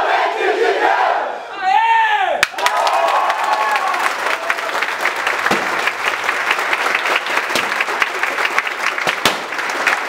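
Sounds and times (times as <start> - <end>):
crowd clapping: 2.4 - 10.0
sharp single clap: 5.4 - 6.0, 7.4 - 7.9, 9.0 - 9.7.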